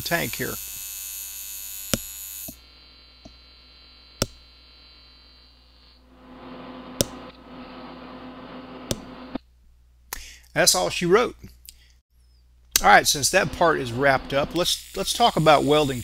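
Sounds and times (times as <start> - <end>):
welding arc buzzing: 0.0 - 9.4, 12.8 - 16.0
low hum: 2.8 - 9.4, 12.8 - 15.9.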